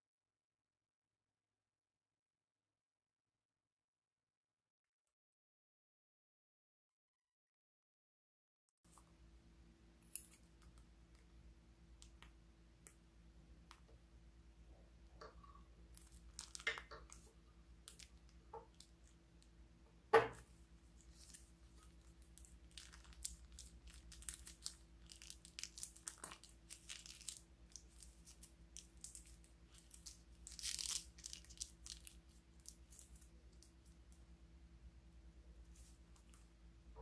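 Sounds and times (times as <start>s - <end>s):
plastic bag crinkling: 15.9s - 19.2s, 21.0s - 33.8s.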